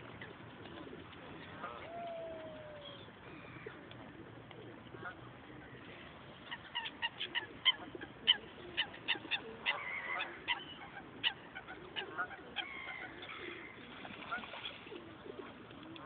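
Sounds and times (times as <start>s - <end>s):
waterfowl calling: 5.0s - 16.0s.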